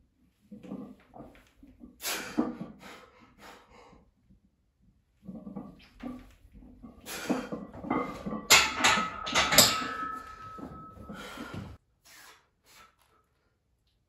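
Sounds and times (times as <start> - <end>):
barbell clanking on metal stands: 5.2 - 11.8
metal ringing tone: 7.8 - 11.6
heavy breathing: 11.0 - 13.1.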